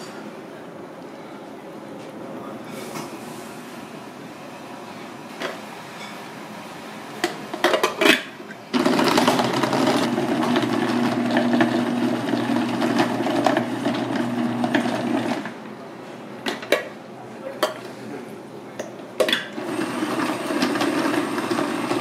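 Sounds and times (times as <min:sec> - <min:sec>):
food processor motor running: 0:08.8 - 0:15.5, 0:19.6 - 0:22.0.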